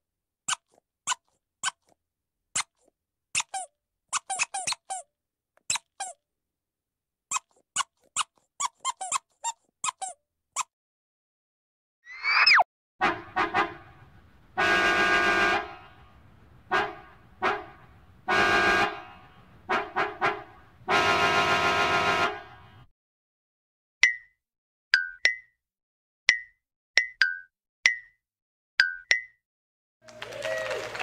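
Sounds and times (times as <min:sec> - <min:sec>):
rubber squeeze toy squeaking: 0:00.4 - 0:06.2, 0:07.3 - 0:10.7
brief whistling zing: 0:12.1 - 0:12.6
car horn blasts: 0:13.0 - 0:22.9.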